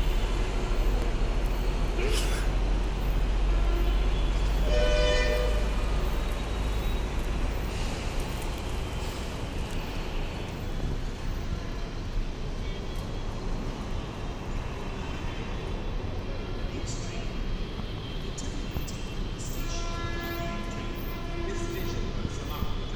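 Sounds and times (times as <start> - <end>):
urban traffic noise: 0.0 - 22.9
vehicle horn toot: 3.5 - 5.9.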